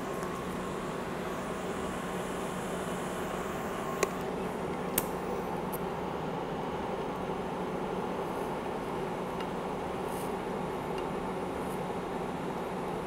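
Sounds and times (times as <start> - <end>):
steady background hiss: 0.0 - 13.0
welding arc snaps: 4.9 - 5.2.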